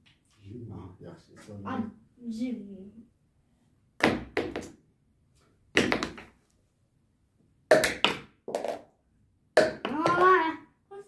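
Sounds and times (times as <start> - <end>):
marker pens knocking and clattering: 7.7 - 8.9.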